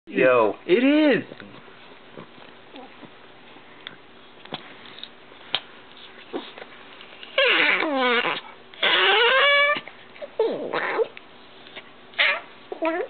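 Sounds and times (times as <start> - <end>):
dog howling call: 7.4 - 9.8.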